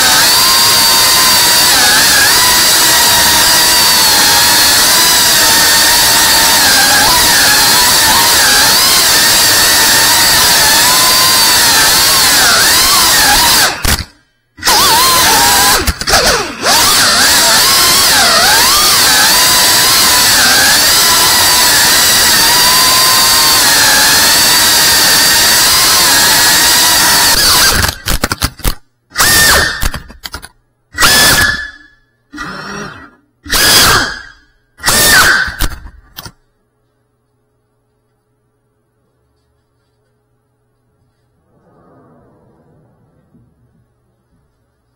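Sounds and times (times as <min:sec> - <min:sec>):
quadcopter motors whining: 0:00.0 - 0:28.1, 0:29.2 - 0:30.0, 0:31.0 - 0:35.8.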